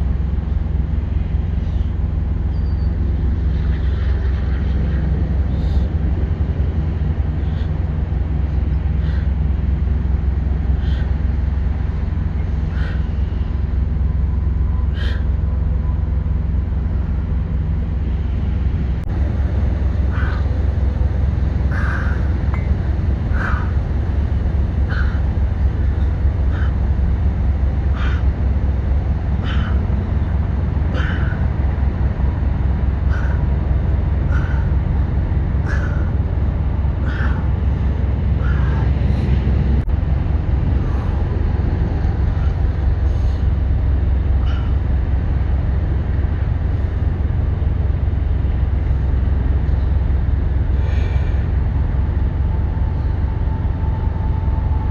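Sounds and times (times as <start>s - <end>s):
low outdoor rumble: 0.0s - 54.9s
bird chirps: 2.5s - 3.0s.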